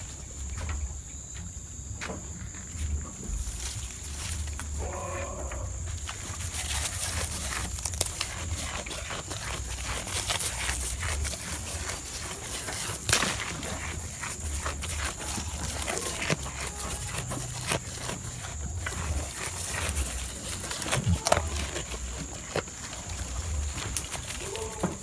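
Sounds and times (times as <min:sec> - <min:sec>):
goats chewing leaves: 0:02.2 - 0:25.0
leaves and stems tearing: 0:03.6 - 0:25.0.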